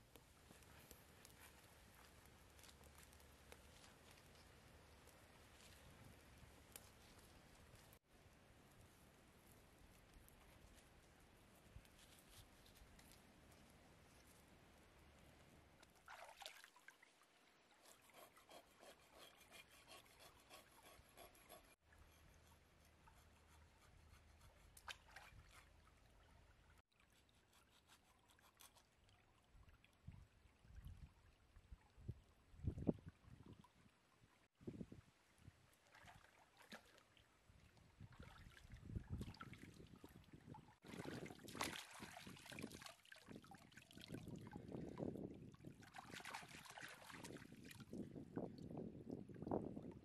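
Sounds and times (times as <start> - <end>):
faint stream water trickling: 0.0 - 50.0
small water splashes: 15.8 - 17.8, 35.4 - 48.0.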